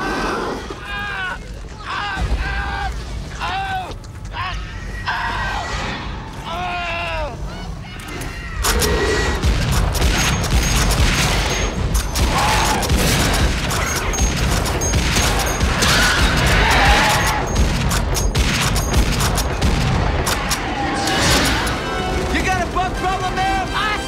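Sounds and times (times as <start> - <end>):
automatic rifle fire: 8.8 - 20.7.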